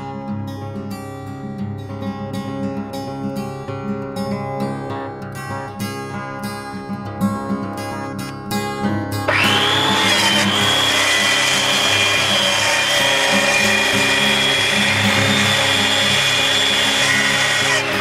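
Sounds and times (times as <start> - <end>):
track saw whining: 9.3 - 18.0.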